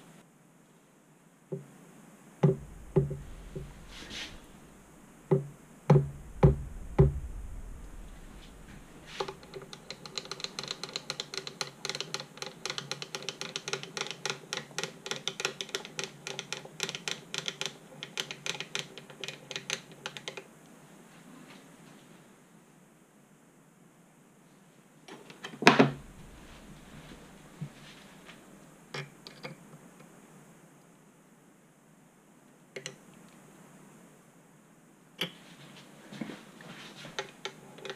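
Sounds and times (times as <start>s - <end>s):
sharp metal knocks: 2.4s - 9.9s
fast even ticking: 2.4s - 18.8s.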